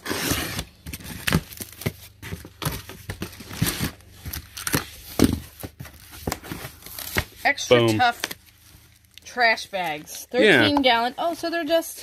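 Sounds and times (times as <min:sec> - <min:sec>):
knife slitting packing tape: 0:00.0 - 0:01.8
cardboard rustling and knocking: 0:00.1 - 0:07.4.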